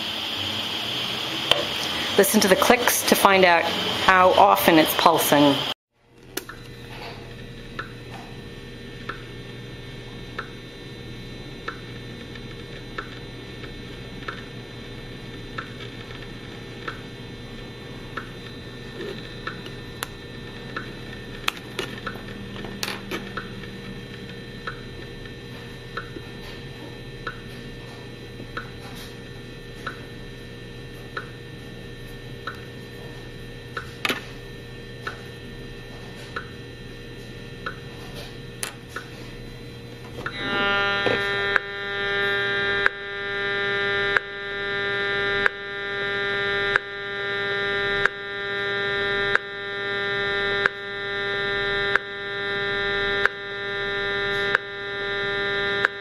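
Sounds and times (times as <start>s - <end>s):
faint steady hum: 0.0s - 56.0s
meter clicking from speaker: 40.2s - 56.0s.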